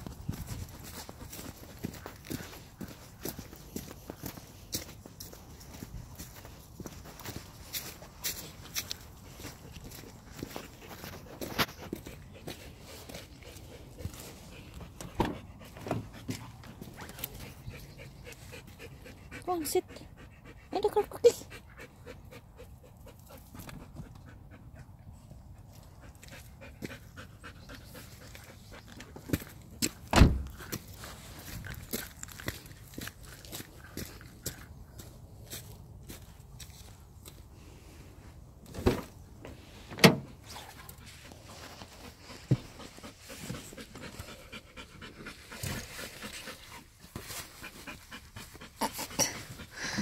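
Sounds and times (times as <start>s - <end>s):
dog panting: 0.3s - 29.6s, 40.5s - 50.0s.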